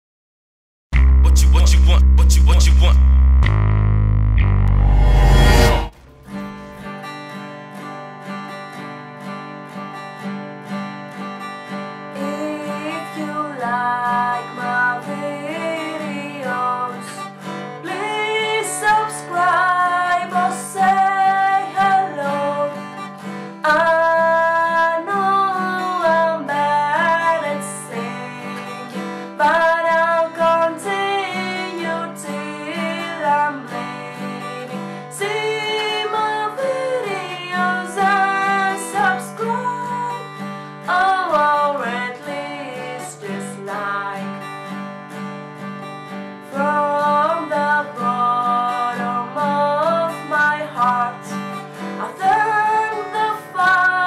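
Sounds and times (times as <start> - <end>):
acoustic guitar strummed: 4.4 - 54.0
woman singing: 12.2 - 44.5, 46.5 - 54.0.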